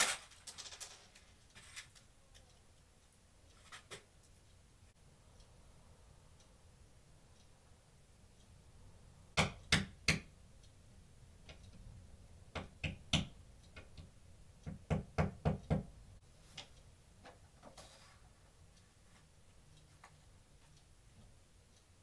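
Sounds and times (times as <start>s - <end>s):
hammer tapping a nail: 9.4s - 10.3s, 14.6s - 15.9s.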